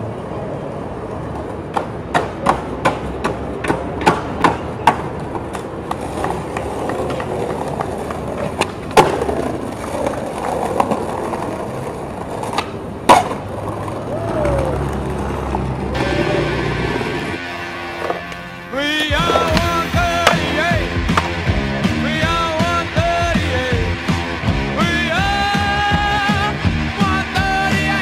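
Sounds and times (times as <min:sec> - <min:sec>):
skateboard wheels rolling on pavement: 0:00.0 - 0:28.0
skateboard clacking on ground: 0:00.3 - 0:17.0
loud skateboard crack: 0:01.3 - 0:17.4, 0:18.0 - 0:21.5.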